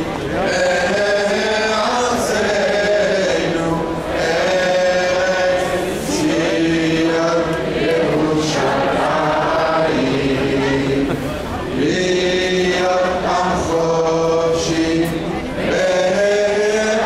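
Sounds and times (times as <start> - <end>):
crowd chanting: 0.0 - 17.0.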